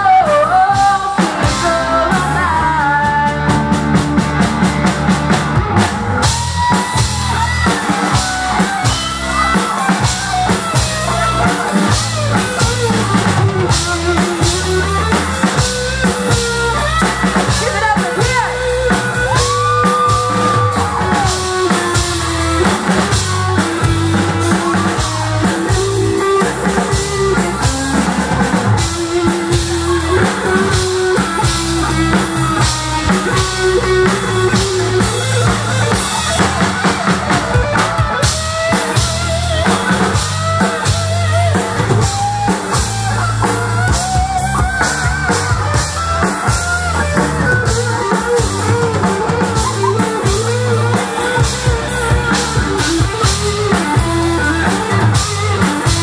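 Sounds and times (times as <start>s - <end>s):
lead vocalist singing: 0.0s - 4.4s
live rock band: 0.0s - 56.0s.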